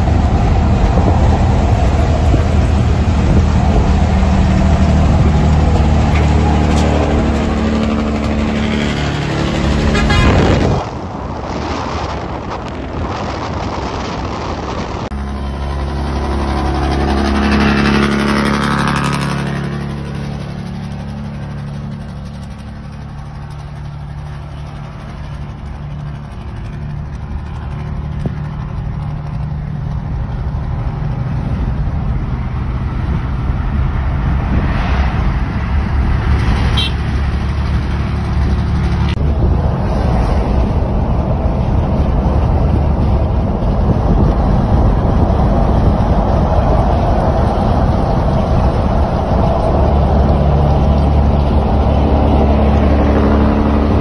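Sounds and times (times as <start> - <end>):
car engine drone: 0.0 - 54.0
wind noise: 0.0 - 54.0.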